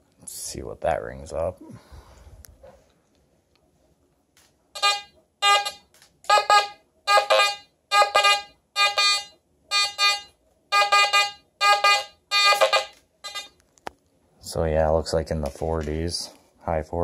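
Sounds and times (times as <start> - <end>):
metal detector buzzy beeps: 4.8 - 13.6.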